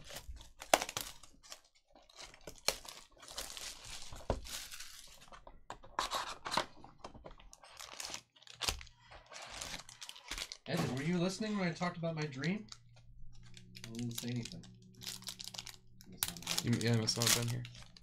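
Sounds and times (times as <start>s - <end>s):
packaging tearing: 0.0s - 5.3s, 7.6s - 11.2s, 13.5s - 18.0s
wrappers crinkling: 0.0s - 5.3s, 7.5s - 11.6s, 12.4s - 18.0s.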